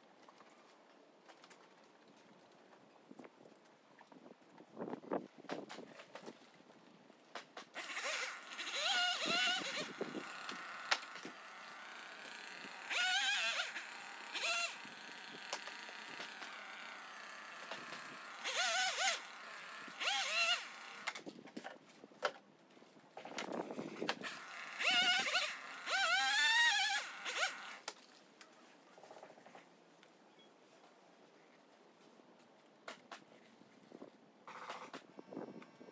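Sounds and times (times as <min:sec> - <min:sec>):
chainsaw revving and cutting: 0:07.8 - 0:21.2, 0:24.2 - 0:27.9.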